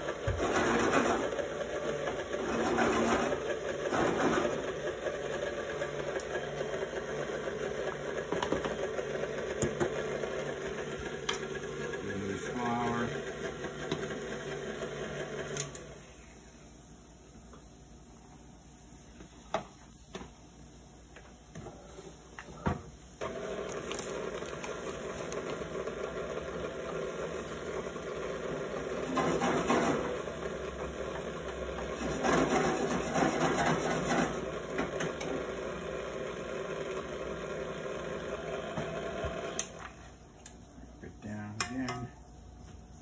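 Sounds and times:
electric mixer motor running: 0.0 - 16.0, 23.2 - 39.9.

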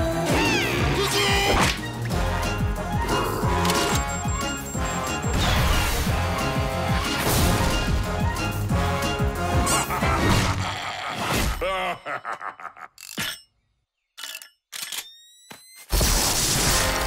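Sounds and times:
busy action music: 0.1 - 10.7.

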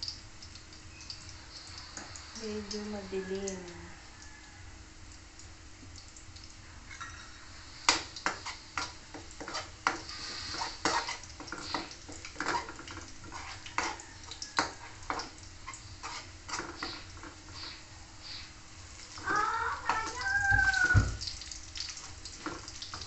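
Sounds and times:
metal spoon scraping a wok: 8.2 - 14.0, 16.0 - 17.8.

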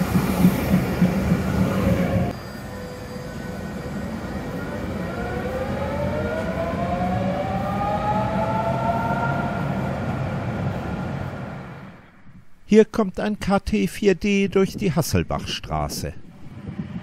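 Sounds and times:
tram motor whine: 0.0 - 12.3
tram rumbling on rails: 0.0 - 12.4.

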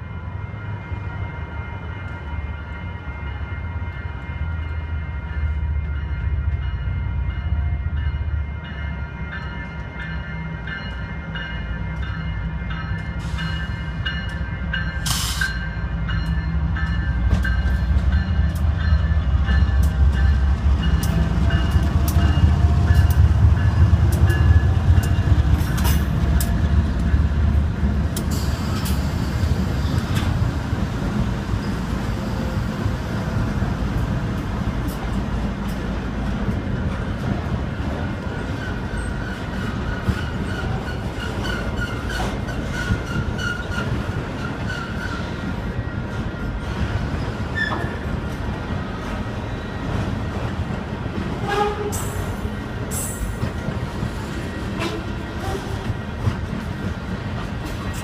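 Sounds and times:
crossing bell ringing: 0.0 - 27.6
diesel locomotive engine rumble: 0.0 - 58.0.

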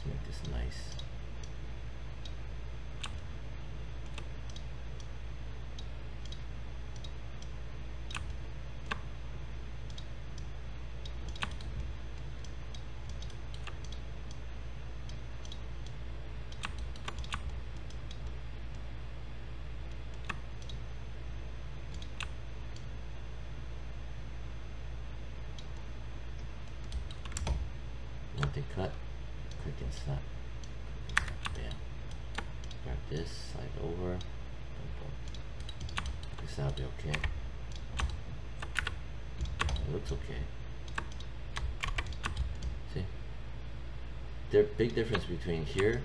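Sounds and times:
steady low hum: 0.0 - 46.0
computer mouse clicks: 3.0 - 3.3, 4.0 - 5.1, 5.8 - 9.1, 9.9 - 14.4, 15.0 - 18.8, 19.9 - 20.8, 21.9 - 22.9, 26.4 - 27.6, 30.6 - 32.8, 35.2 - 40.2, 40.8 - 42.8, 44.9 - 46.0
keyboard keys clicking: 9.9 - 14.4, 15.4 - 18.3, 35.2 - 40.2, 40.9 - 42.8.

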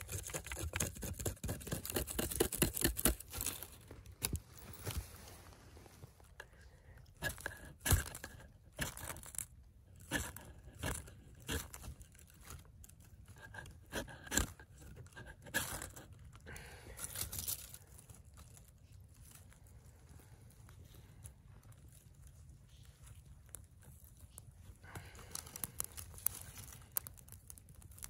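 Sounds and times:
knife scraping ferro rod: 0.0 - 3.8, 7.2 - 12.6, 13.3 - 16.1.

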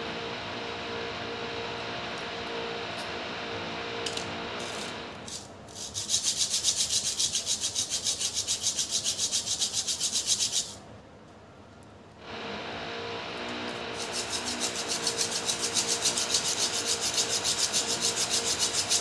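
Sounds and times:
brake pad scraping on sandpaper: 14.0 - 19.0.

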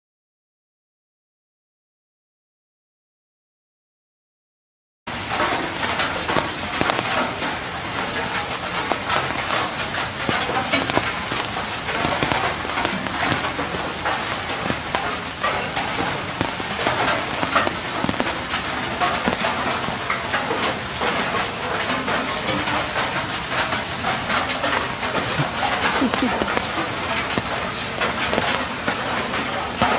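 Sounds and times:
rain on hard surfaces: 5.1 - 29.9.

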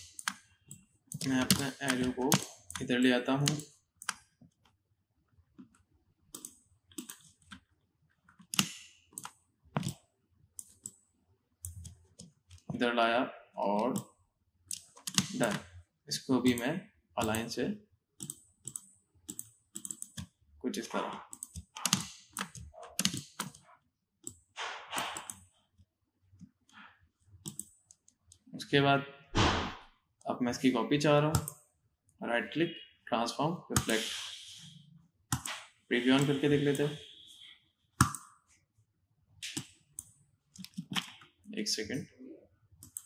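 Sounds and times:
keyboard keys clicking: 0.0 - 4.2, 14.7 - 15.6, 21.3 - 23.6
computer mouse clicks: 5.6 - 7.6, 24.2 - 25.5, 27.4 - 28.4, 42.8 - 43.0
computer keyboard clicks: 21.3 - 23.6.

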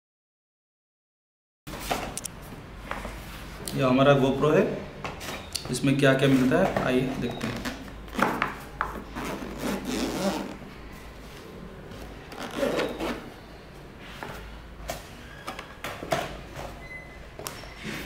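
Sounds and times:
zipper rasping: 9.1 - 10.6, 11.9 - 13.3.

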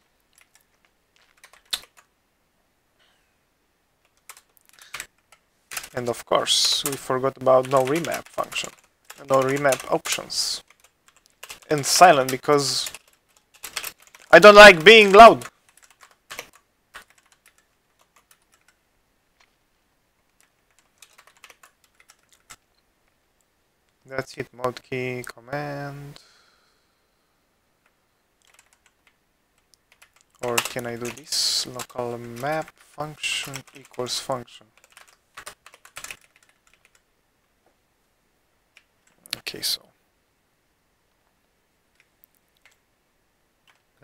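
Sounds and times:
faint keyboard keystrokes: 0.3 - 2.1, 14.9 - 18.8, 20.3 - 22.6, 27.8 - 31.2, 34.8 - 37.0.

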